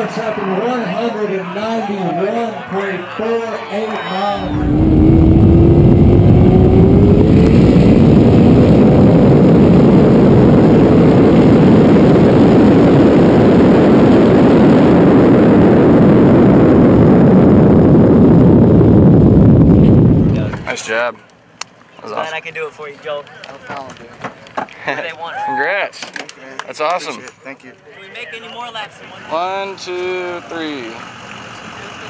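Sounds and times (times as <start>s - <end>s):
car engine roaring at full throttle: 4.4s - 20.6s
heavy wind rush: 4.4s - 20.8s.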